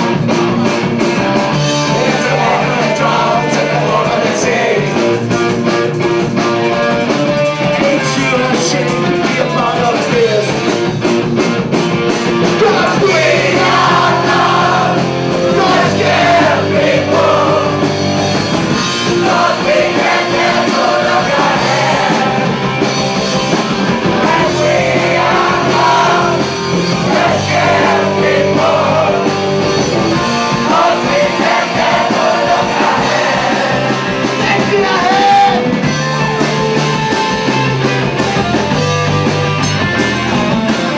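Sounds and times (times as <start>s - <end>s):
rock band playing: 0.0s - 40.9s
choir singing: 1.5s - 5.3s, 12.5s - 35.6s.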